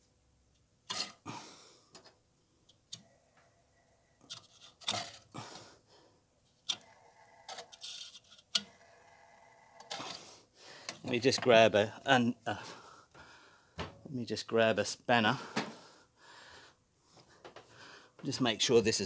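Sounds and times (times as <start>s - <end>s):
hands handling plastic fan: 4.2s - 5.3s.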